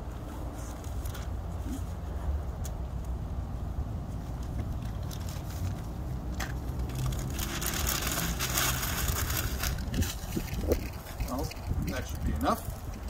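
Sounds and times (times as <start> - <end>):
newspaper crumpling: 6.7 - 11.6.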